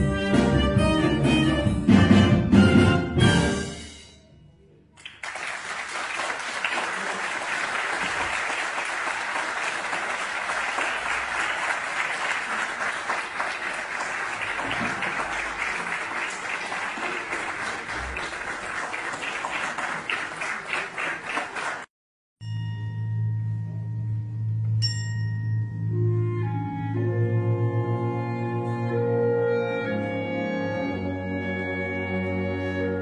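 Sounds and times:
audience applauding: 5.0s - 21.9s.

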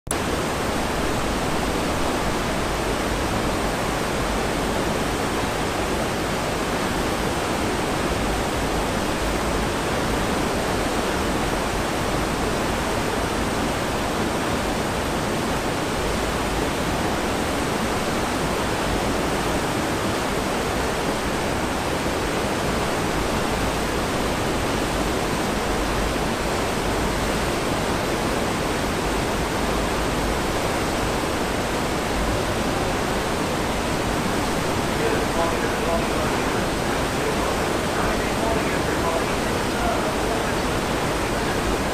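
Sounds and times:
rushing foaming water: 0.1s - 41.9s.

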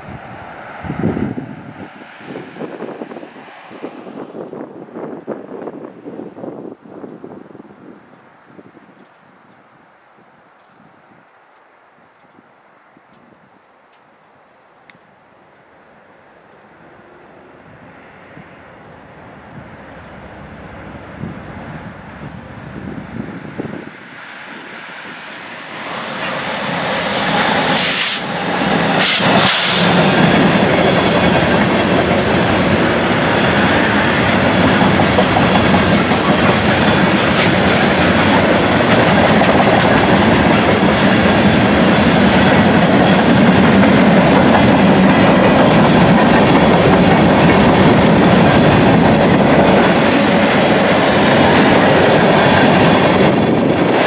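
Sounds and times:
diesel locomotives passing: 0.0s - 54.0s
train wheels clickety-clack: 25.2s - 54.0s.

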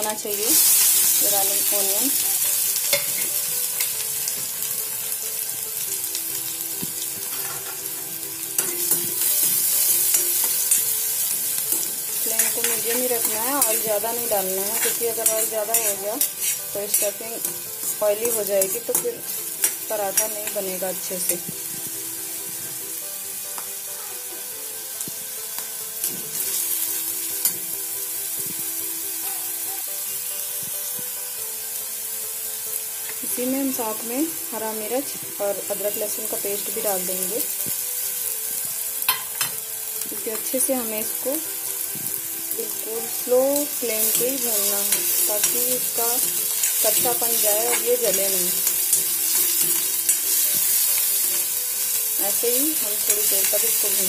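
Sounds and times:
onion sizzling in hot oil: 0.0s - 54.0s
spoon scraping against pan: 8.6s - 20.7s
metal spatula stirring: 8.6s - 21.4s, 43.1s - 54.0s.

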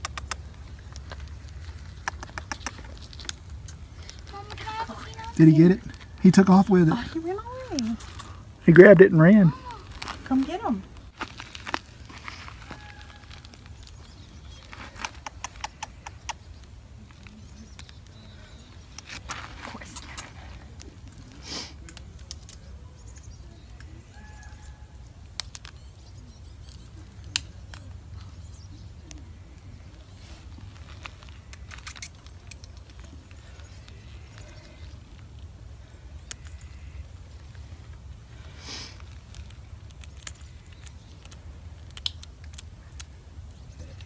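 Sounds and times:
sharp clicks: 0.0s - 4.6s, 39.3s - 43.1s.

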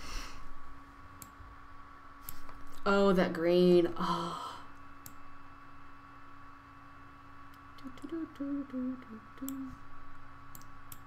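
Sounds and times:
faint electrical hum: 0.0s - 11.0s
person humming low notes: 7.8s - 9.8s.

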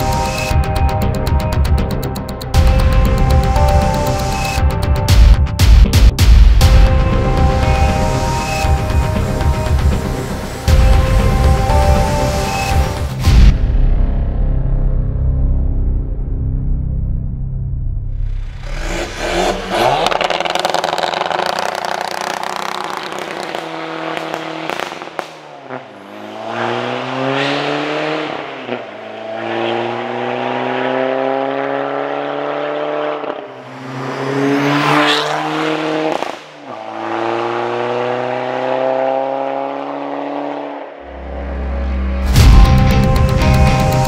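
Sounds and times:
diesel engine accelerating: 16.6s - 44.0s.

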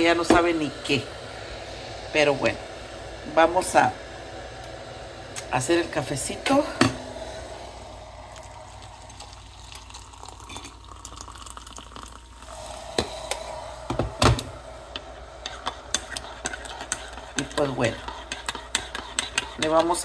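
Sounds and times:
water pouring into a mug: 7.8s - 14.6s.

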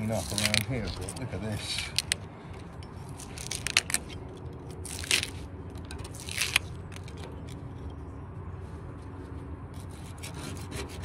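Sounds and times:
metal scraping on cut steel edge: 9.8s - 11.0s.

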